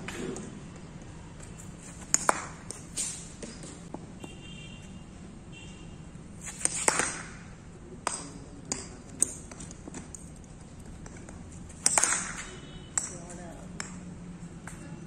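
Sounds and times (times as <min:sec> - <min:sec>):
cricket bat hitting ball: 0:06.5 - 0:09.6, 0:11.8 - 0:14.0.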